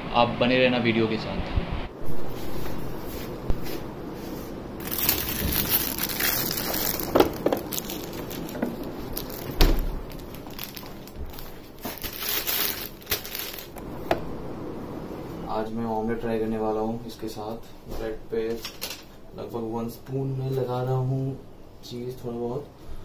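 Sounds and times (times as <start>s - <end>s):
plastic wrapping crinkling: 4.8s - 13.8s.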